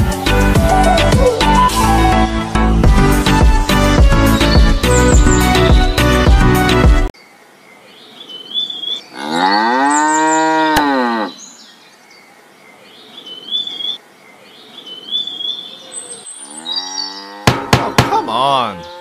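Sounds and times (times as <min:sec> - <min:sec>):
bird chirps: 0:04.3 - 0:06.0, 0:07.2 - 0:10.6, 0:11.3 - 0:17.4
cow mooing: 0:09.1 - 0:11.4, 0:16.5 - 0:17.7, 0:18.6 - 0:19.0.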